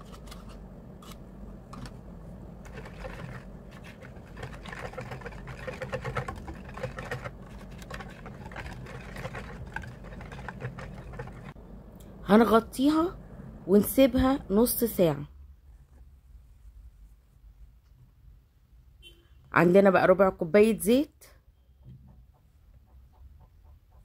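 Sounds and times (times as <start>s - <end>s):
whisk beating batter in bowl: 2.6s - 11.6s.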